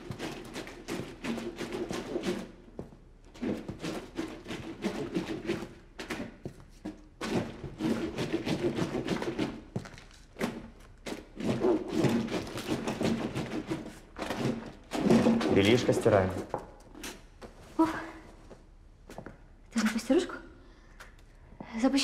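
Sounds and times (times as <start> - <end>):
scrubbing wet cloth: 0.0 - 16.5.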